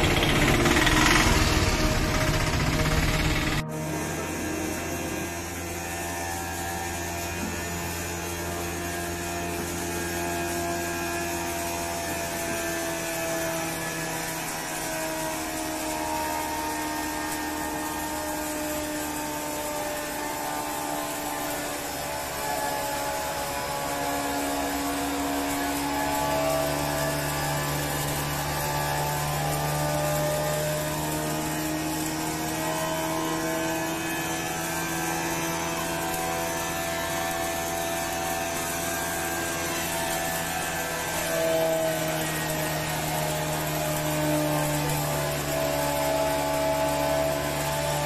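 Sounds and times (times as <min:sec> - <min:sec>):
grinding machine hum: 0:00.0 - 0:13.5.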